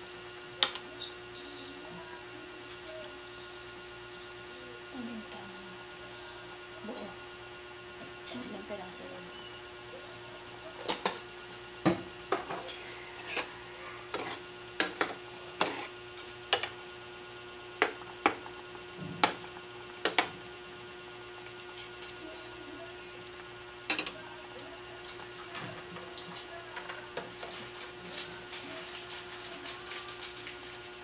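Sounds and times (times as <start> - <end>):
steady hum: 0.0 - 31.0
spatula scraping metal pot: 12.7 - 14.5, 15.4 - 16.0.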